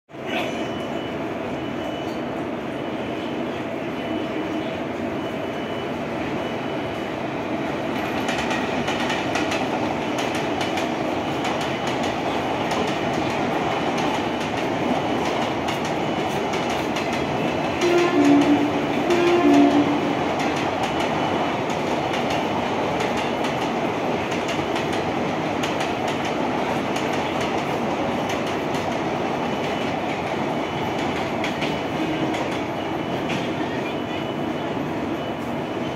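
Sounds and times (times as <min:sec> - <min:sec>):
train wheels clattering over rail joints: 0:08.0 - 0:19.7
train horn blasts: 0:17.7 - 0:20.2.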